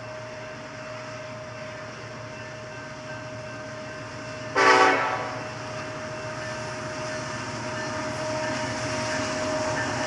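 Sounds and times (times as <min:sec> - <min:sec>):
freight train rumbling: 0:00.0 - 0:10.0
locomotive air horn blast: 0:04.5 - 0:05.4.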